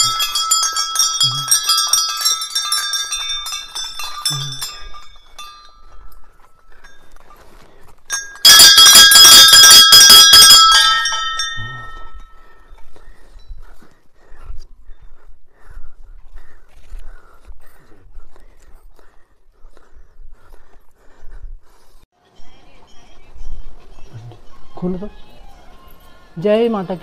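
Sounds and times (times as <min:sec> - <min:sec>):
metal bells ringing: 0:00.0 - 0:07.2, 0:08.1 - 0:13.7.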